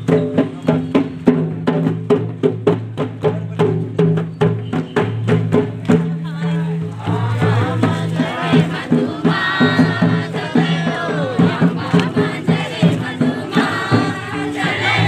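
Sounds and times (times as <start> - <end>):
steady drum beat: 0.0 - 15.0
group singing folk song: 6.6 - 15.0.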